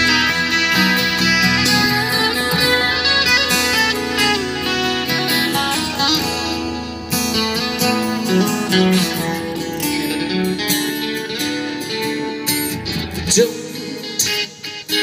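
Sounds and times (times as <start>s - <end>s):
acoustic guitars playing: 0.0s - 15.0s.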